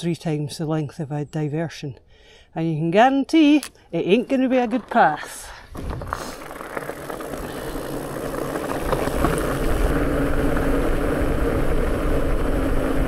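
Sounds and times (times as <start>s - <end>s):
bike tyres rumbling: 4.2s - 13.0s
wind noise: 4.8s - 13.0s.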